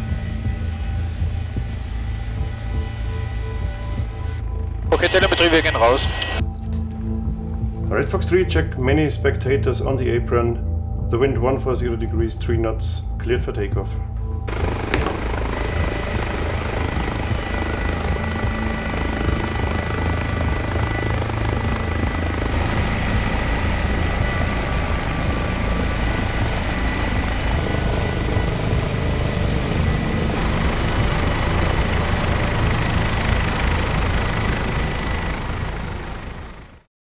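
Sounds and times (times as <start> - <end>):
turbine whine: 0.0 - 7.5, 14.5 - 36.9
helicopter rotor thrum: 14.5 - 36.9.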